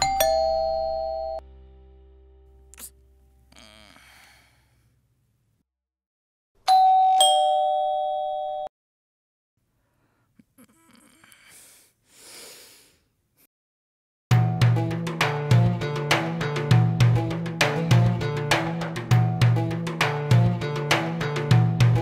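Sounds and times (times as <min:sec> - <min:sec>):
electronic doorbell ding-dong: 0:00.0 - 0:01.4, 0:06.7 - 0:08.7
loud music with a beat: 0:14.3 - 0:22.0.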